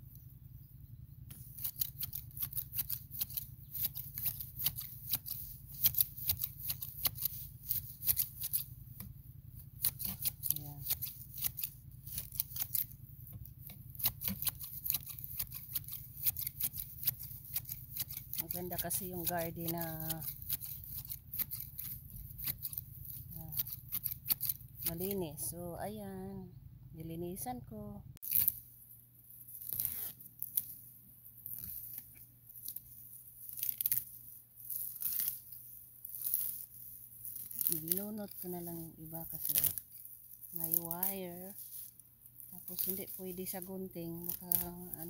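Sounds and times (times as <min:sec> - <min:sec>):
grass shears snipping: 0:01.3 - 0:09.1, 0:09.8 - 0:13.0, 0:13.6 - 0:25.2, 0:33.5 - 0:45.0.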